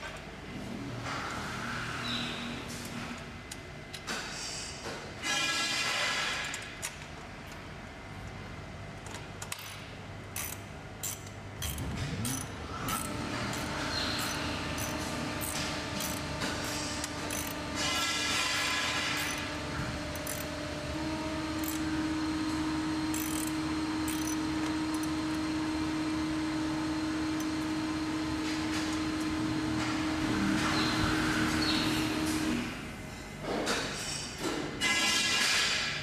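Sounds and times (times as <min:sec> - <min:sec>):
steady hum: 0:06.7 - 0:33.6
ratchet clicking: 0:10.4 - 0:16.2, 0:23.1 - 0:23.5, 0:24.1 - 0:25.1
tool clicking on metal frame: 0:10.4 - 0:16.3.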